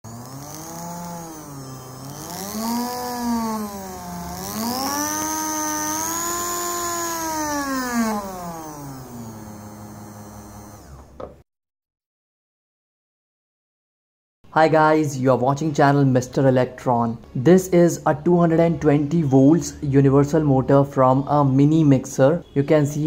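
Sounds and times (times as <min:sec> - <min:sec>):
electric motor whining: 0:00.0 - 0:11.3.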